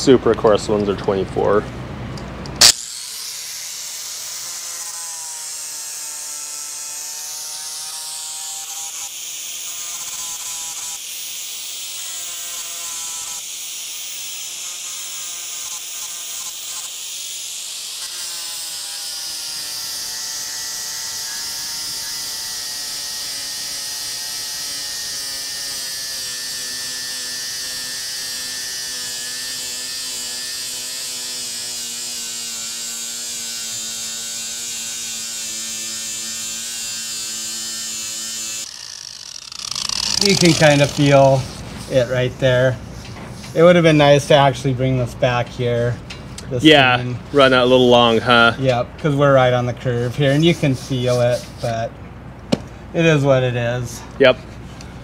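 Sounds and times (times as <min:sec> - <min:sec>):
angle grinder sanding metal: 0:02.6 - 0:45.9, 0:47.3 - 0:51.9.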